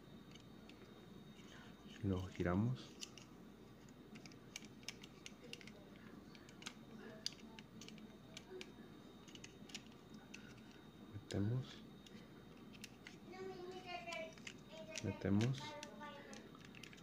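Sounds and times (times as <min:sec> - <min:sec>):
plastic toy parts clicking: 0:02.2 - 0:10.8, 0:12.0 - 0:13.2, 0:13.8 - 0:17.0.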